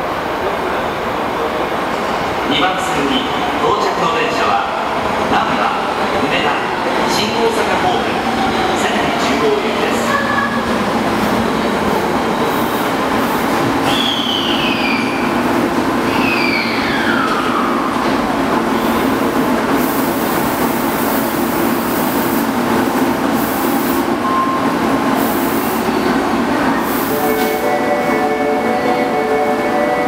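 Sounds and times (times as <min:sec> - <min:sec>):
subway train stopping: 0:00.0 - 0:30.0
falling train whines: 0:06.0 - 0:30.0.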